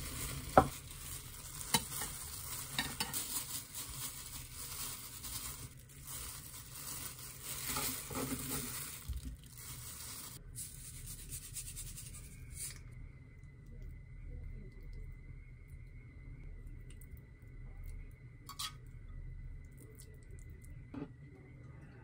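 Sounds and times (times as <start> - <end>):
plastic glove rustling: 0.0 - 12.8.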